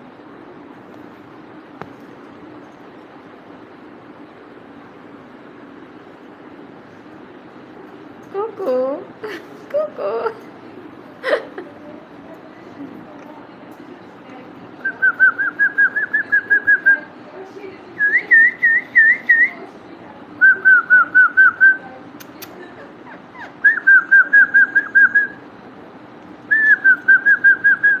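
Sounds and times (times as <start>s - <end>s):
cockatiel whistling: 23.4s - 25.4s.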